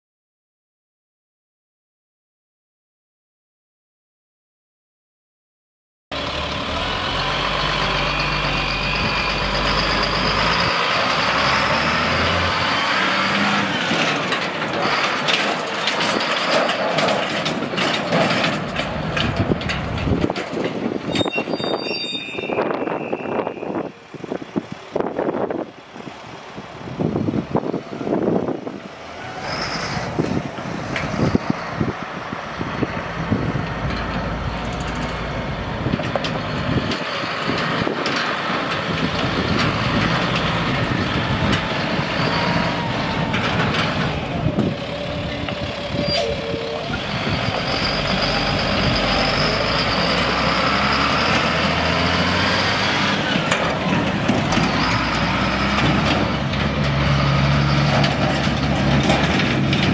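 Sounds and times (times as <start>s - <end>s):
diesel truck engine running: 6.1s - 21.0s, 23.8s - 59.9s
knocks and clatters: 13.8s - 21.3s, 53.3s - 59.9s.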